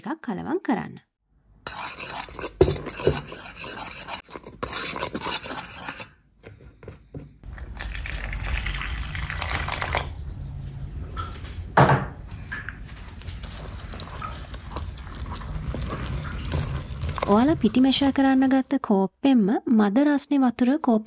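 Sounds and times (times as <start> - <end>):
spoon scraping mixing bowl: 1.7 - 7.4, 13.2 - 18.7.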